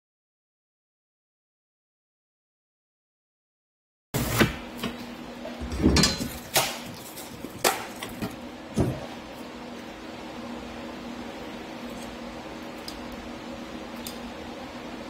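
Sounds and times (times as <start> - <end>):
boards being handled: 4.2 - 9.3
electric fans humming: 4.2 - 15.0.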